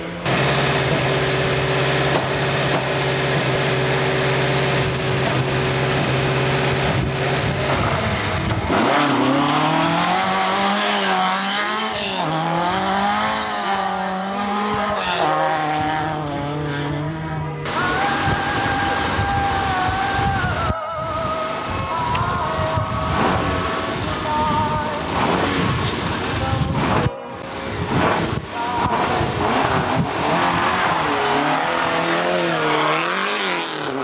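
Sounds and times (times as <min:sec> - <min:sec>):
rally car engine revving: 0:00.0 - 0:34.0.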